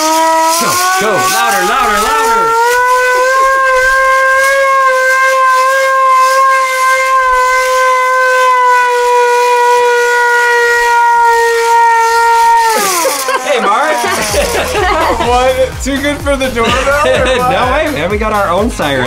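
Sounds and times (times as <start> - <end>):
hand-cranked siren wailing: 0.0 - 15.2.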